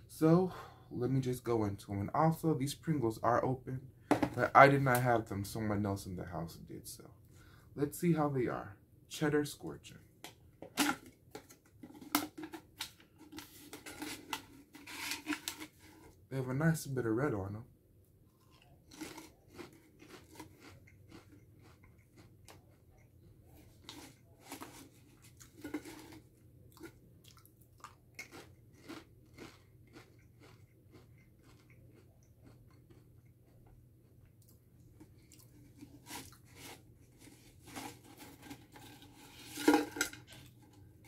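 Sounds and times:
person chewing crisps: 18.3 - 39.2.

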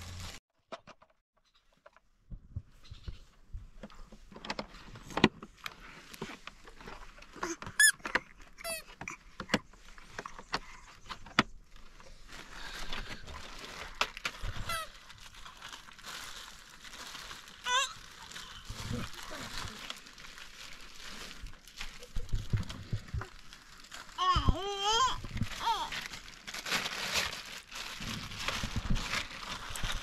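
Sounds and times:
plastic wrapping crinkling: 0.0 - 0.4, 9.7 - 30.0
plastic parts clicking and knocking: 0.6 - 1.2.

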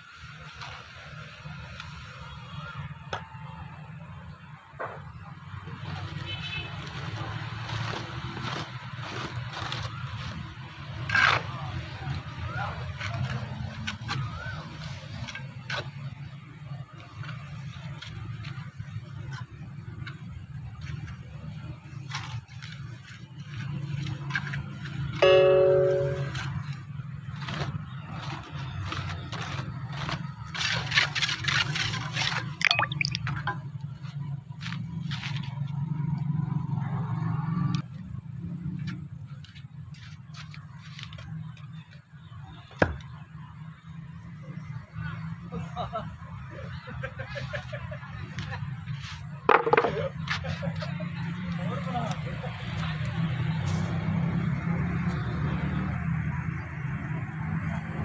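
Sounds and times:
trowel scraping cement: 5.8 - 12.3, 25.9 - 32.6.

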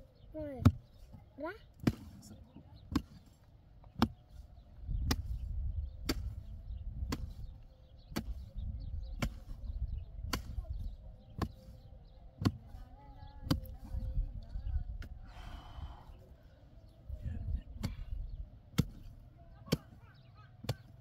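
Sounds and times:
sharp chopping strikes: 6.0 - 6.4, 10.2 - 10.6.

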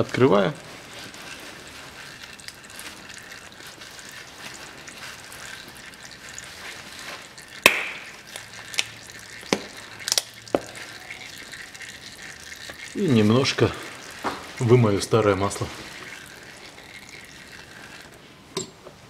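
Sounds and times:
faint steady hiss: 6.4 - 19.0.

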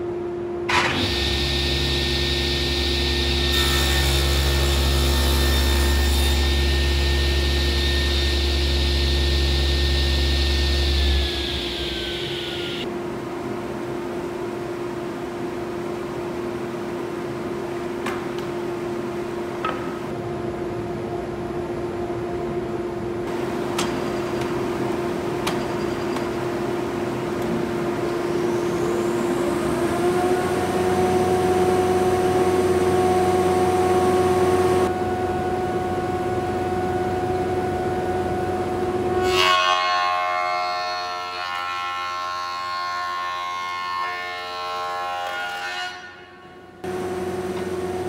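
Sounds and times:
machine hum: 0.0 - 48.0
thickness planer whining: 0.7 - 12.9, 26.2 - 46.2, 46.8 - 48.0.

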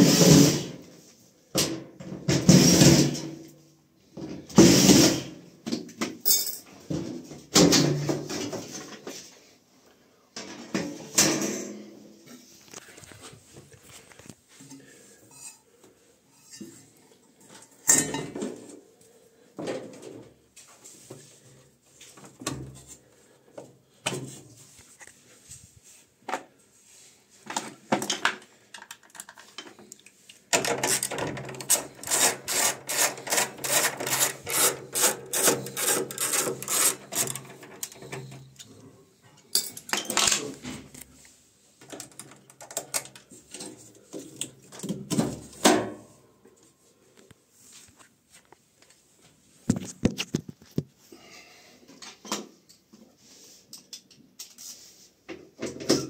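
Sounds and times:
metal tools clinking: 6.2 - 6.7.

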